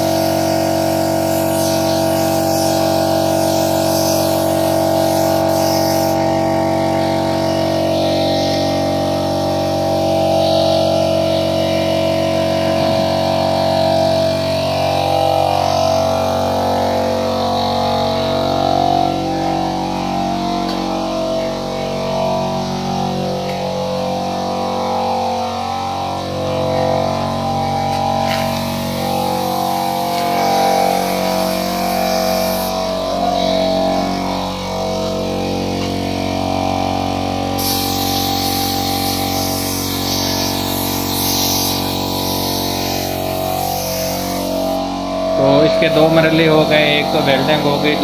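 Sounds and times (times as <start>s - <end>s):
paint spray gun hissing: 0.0s - 16.1s, 27.7s - 34.2s, 37.0s - 48.0s.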